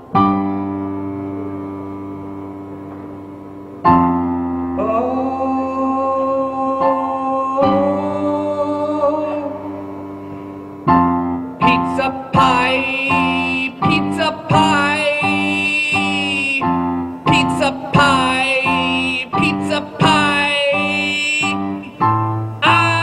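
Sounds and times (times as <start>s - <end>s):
digital piano chords: 0.0s - 23.0s
man singing wavering notes: 4.7s - 10.1s.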